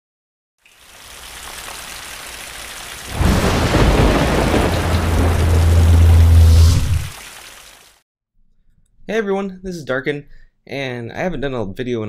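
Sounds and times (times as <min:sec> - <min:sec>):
rain hiss: 0:00.7 - 0:08.0
thunder crack and rumble: 0:03.1 - 0:07.1
deep drone: 0:03.2 - 0:07.2.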